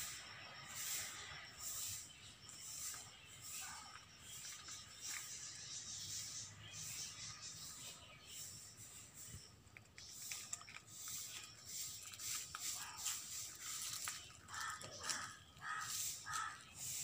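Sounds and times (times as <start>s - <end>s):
steady high hiss: 0.0s - 14.2s, 15.6s - 17.0s
bird calling: 10.0s - 17.0s.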